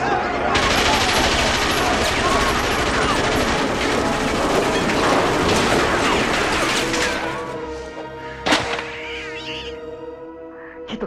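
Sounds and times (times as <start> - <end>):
machine-gun fire: 0.6 - 7.4.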